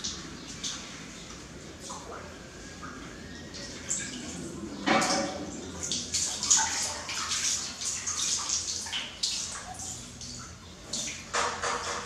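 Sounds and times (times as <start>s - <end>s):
water splashing in metal basin: 3.6s - 12.0s.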